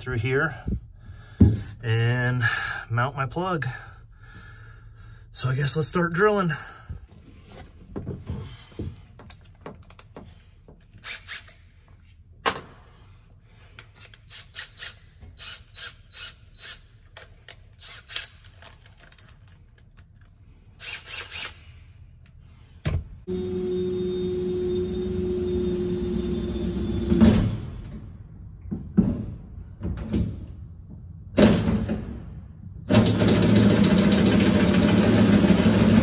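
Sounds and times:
power drill humming: 0:23.3 - 0:27.2.

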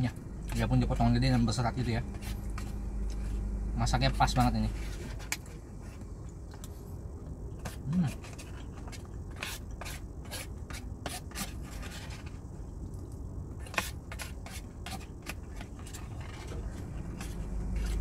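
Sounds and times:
low steady rumble: 0:00.0 - 0:18.0
plastic spoon scraping paper box: 0:13.6 - 0:18.0.

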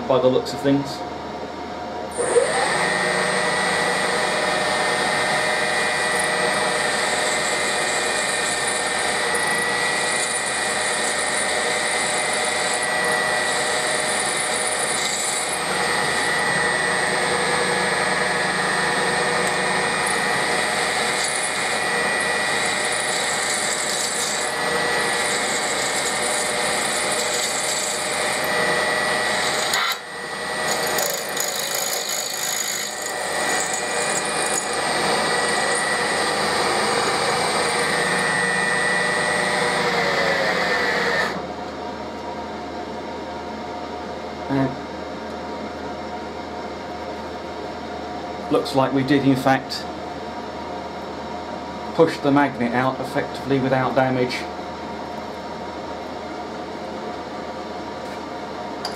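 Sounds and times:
machine running hum: 0:00.0 - 0:58.9
drill bit grinding metal: 0:02.1 - 0:41.4.

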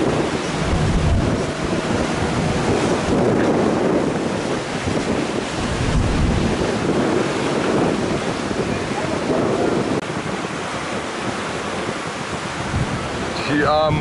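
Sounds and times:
choppy sea and breaking wake: 0:00.0 - 0:14.0
wind buffeting microphone: 0:00.0 - 0:14.0.

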